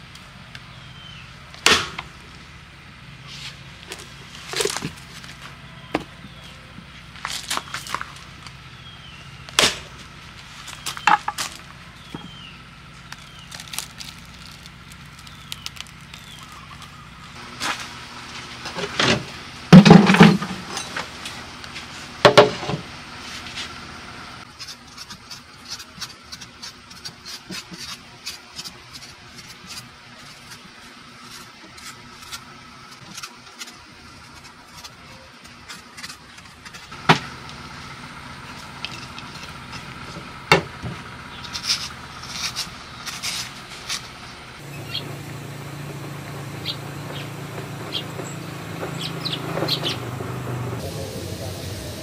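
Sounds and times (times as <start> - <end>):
machete chopping coconut: 1.6 - 2.1, 9.5 - 10.0.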